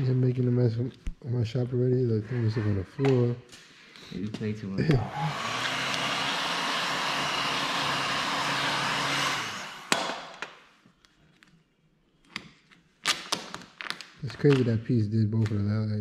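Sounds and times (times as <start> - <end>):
fan winding down: 4.8 - 10.0
heat gun blowing: 4.9 - 10.4.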